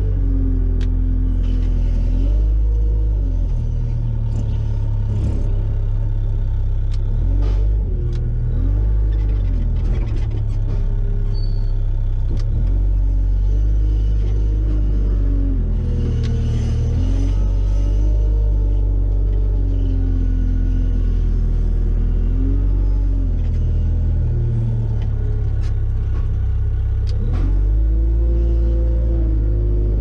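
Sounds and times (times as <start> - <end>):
loader engine running: 0.0 - 30.0.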